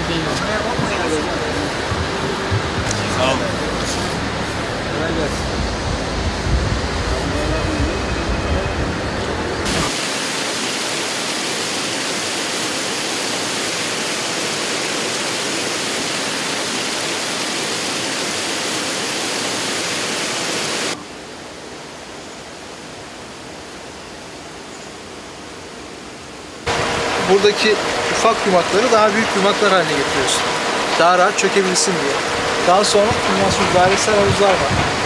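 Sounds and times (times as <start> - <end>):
water churned by aerators: 0.0 - 21.8, 22.6 - 35.0
steady hiss: 9.6 - 35.0.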